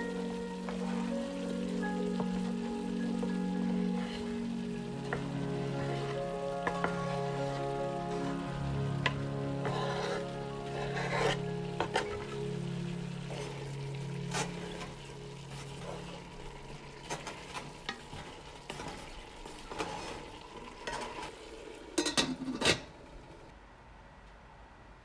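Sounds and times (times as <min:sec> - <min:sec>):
ground beef sizzling: 0:00.0 - 0:22.1
wooden spoon scraping pot: 0:03.2 - 0:08.4, 0:09.0 - 0:12.4, 0:13.2 - 0:16.4, 0:17.0 - 0:21.3.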